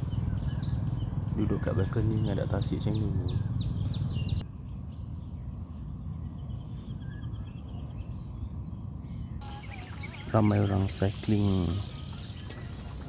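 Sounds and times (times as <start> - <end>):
wind rumble on microphone: 0.0 - 4.9
faint bird chirps: 0.0 - 13.0
high insect whine: 0.0 - 13.0.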